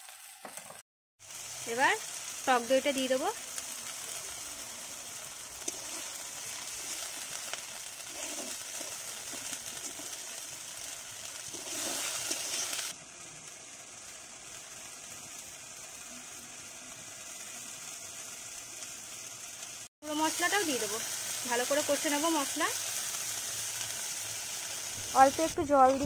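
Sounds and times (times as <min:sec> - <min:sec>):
masala sizzling in a pan: 0:00.0 - 0:26.0
metal spatula stirring: 0:05.6 - 0:12.9.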